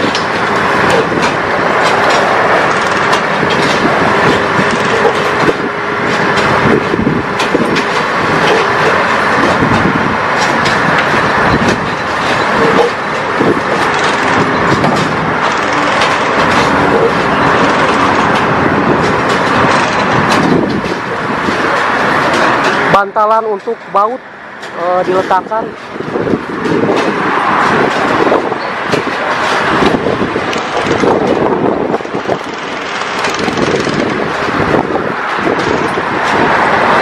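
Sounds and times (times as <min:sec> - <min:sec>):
metallic clanks and knocks: 0:00.0 - 0:23.8
track-laying machine running: 0:00.0 - 0:37.0.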